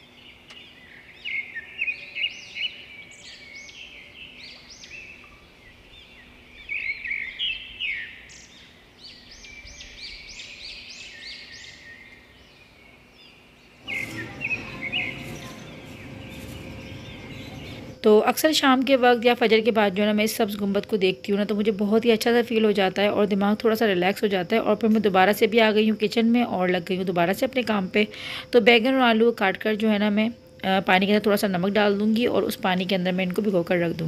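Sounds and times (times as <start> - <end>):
birds chirping: 0.0 - 18.0
steady outdoor rushing noise: 13.8 - 18.0.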